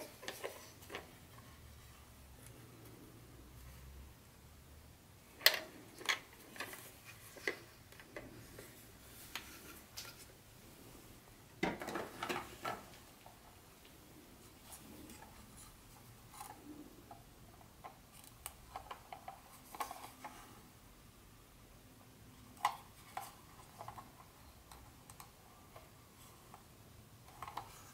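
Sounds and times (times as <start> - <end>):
plastic clatter: 11.6 - 13.0.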